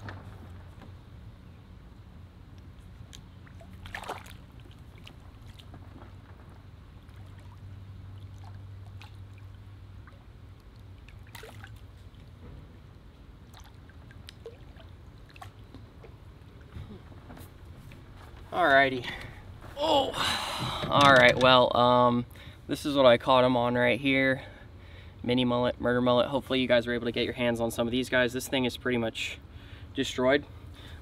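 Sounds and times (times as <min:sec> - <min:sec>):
water splashing and trickling: 0:02.7 - 0:16.8
sharp splash: 0:03.4 - 0:05.7, 0:11.1 - 0:11.9.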